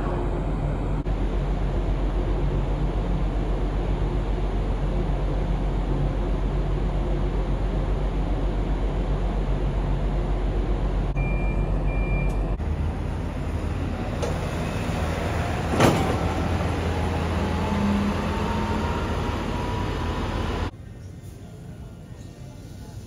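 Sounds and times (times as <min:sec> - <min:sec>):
low machinery hum: 0:00.0 - 0:23.0
short high beeps: 0:11.2 - 0:12.4.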